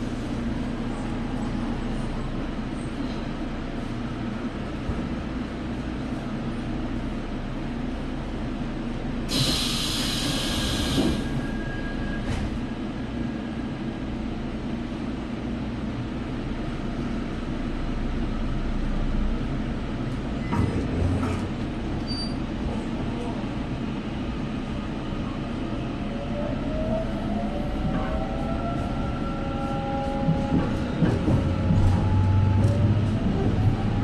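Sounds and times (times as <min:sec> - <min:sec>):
train interior rumble: 0:00.0 - 0:34.0
loud hiss: 0:09.3 - 0:11.3.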